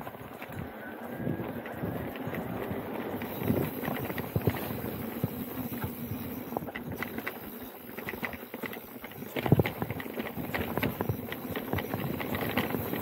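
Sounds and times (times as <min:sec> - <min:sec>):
wind on microphone: 0:00.0 - 0:07.4
bike rattling over bumps: 0:00.0 - 0:13.0
tyres rolling over dirt: 0:00.0 - 0:13.0.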